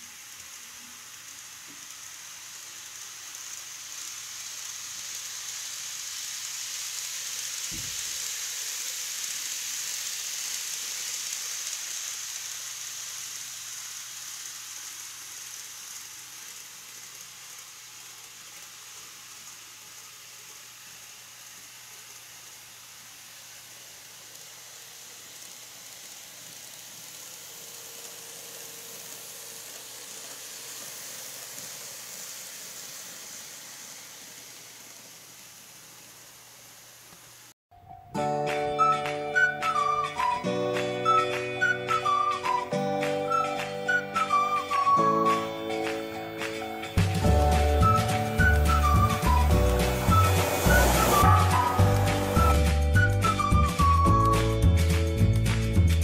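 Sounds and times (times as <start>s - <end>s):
faint motor hum: 0.0s - 37.5s, 39.0s - 55.4s
model train wheels rolling on rail: 0.0s - 37.6s, 38.7s - 56.0s.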